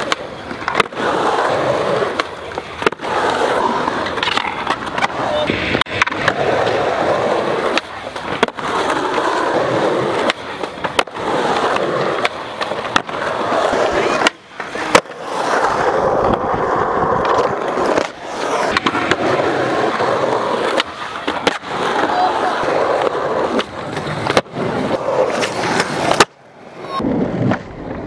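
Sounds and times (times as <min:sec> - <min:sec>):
skateboard clacking on ground: 0:00.0 - 0:28.0
skateboard wheels rolling on concrete: 0:00.0 - 0:28.0.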